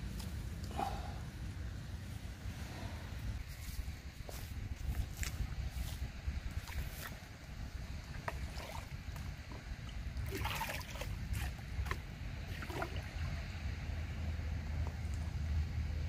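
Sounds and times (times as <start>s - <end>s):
steady low rumble: 0.0s - 16.0s
water splashing in basin: 10.2s - 13.2s.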